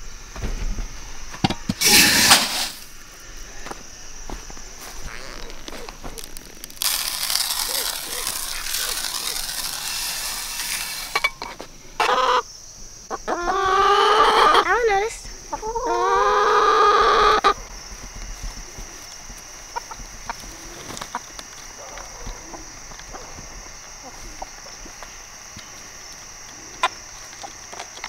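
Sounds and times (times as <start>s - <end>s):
chicken feed pouring hiss: 1.8s - 3.1s, 5.3s - 11.2s
chickens pecking ticks: 5.2s - 10.3s, 15.2s - 28.0s.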